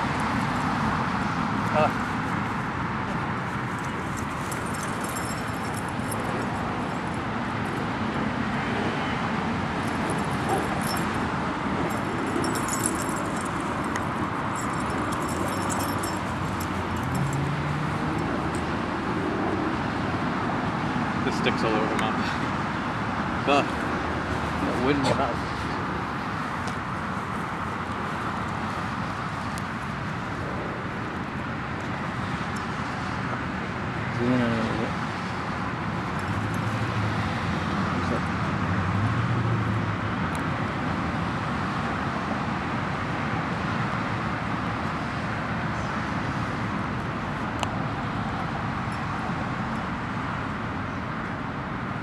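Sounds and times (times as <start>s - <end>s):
road traffic noise: 0.0s - 52.0s
dog collar tags jingling: 3.7s - 7.2s, 9.9s - 11.2s, 11.8s - 17.9s.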